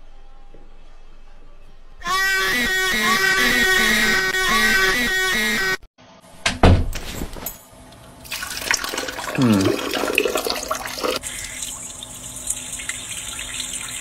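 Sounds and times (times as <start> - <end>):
urine splashing into toilet: 8.3 - 14.0.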